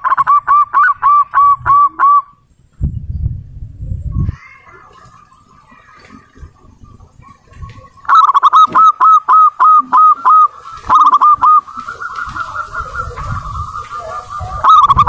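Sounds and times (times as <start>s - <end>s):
dove cooing: 0.0s - 2.4s, 4.4s - 15.0s
soft bird trill: 4.1s - 15.0s.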